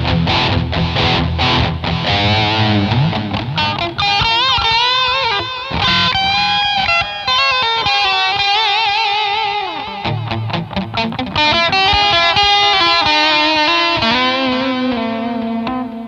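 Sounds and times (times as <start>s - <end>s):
electric guitar lead notes: 0.0s - 16.0s.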